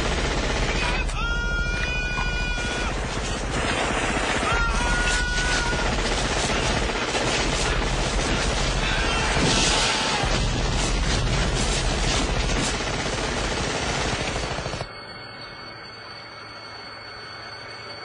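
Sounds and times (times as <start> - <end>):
automatic gunfire: 3.0 - 14.7.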